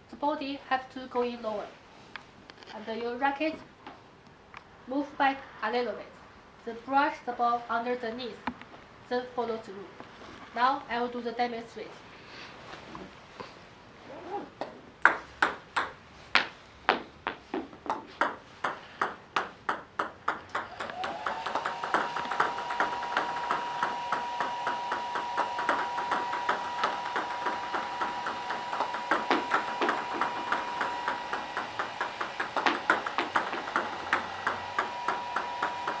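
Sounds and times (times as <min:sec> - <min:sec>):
steady high hum: 0:00.0 - 0:36.0
table tennis balls bouncing: 0:14.6 - 0:36.0.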